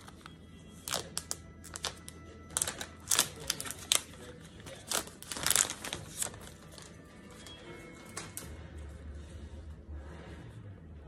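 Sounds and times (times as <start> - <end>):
plastic wrapping crinkling: 0.0 - 8.5.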